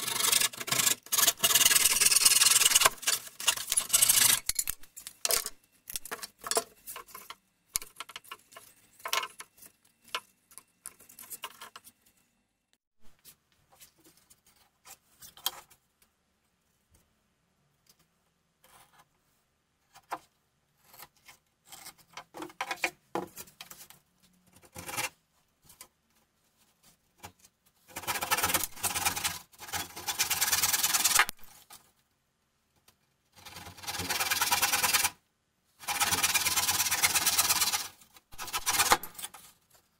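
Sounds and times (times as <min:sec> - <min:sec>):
handsaw strokes: 0:00.0 - 0:04.5, 0:27.9 - 0:31.3, 0:33.4 - 0:35.2, 0:35.8 - 0:39.3.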